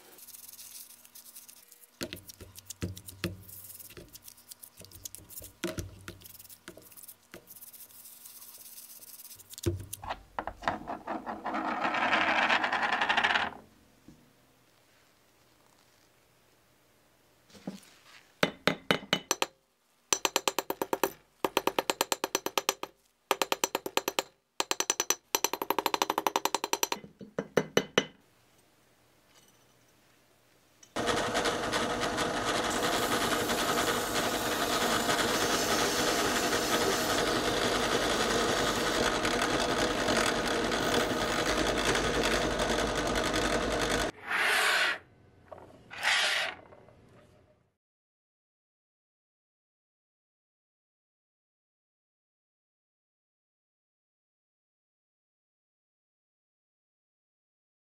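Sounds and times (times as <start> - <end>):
hammer tapping steel rod: 18.4 - 28.2
drill press running: 31.0 - 44.1.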